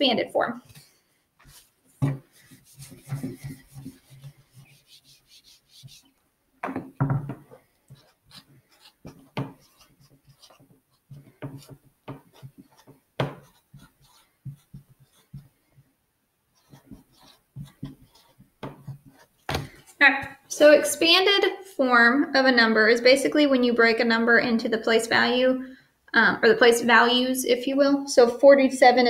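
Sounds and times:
marker scratching on whiteboard: 1.4s - 6.2s, 7.5s - 15.6s, 16.6s - 19.7s
marker knocking against board: 2.0s - 2.3s, 11.4s - 13.6s.

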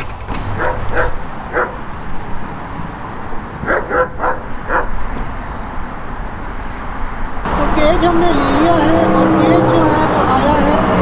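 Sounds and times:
dog yapping: 0.6s - 1.8s, 3.6s - 4.9s.

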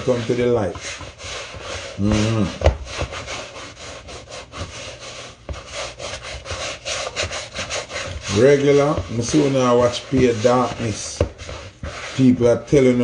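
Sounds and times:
hands scraping plastic bowl: 0.0s - 13.0s.

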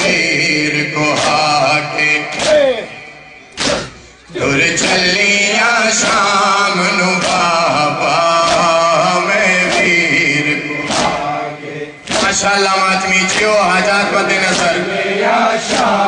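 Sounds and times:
man chanting a lament: 0.0s - 16.0s
sharp slaps: 1.1s - 4.1s, 6.0s - 11.4s, 12.0s - 14.9s, 15.6s - 16.0s.

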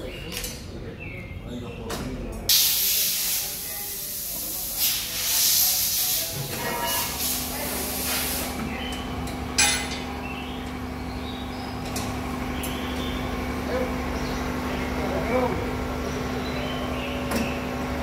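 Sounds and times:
air hissing: 2.5s - 8.6s
low machine hum: 6.3s - 18.0s
metal tools clanking: 9.6s - 10.1s.

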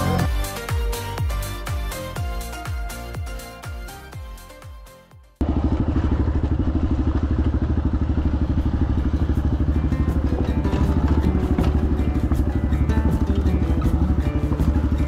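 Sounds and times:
background music: 0.0s - 5.4s, 9.1s - 15.0s
motorcycle engine running: 5.4s - 15.0s.

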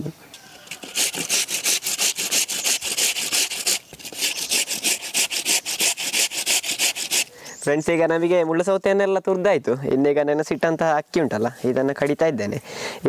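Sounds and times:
cucumber rasping on grater: 0.6s - 7.3s.

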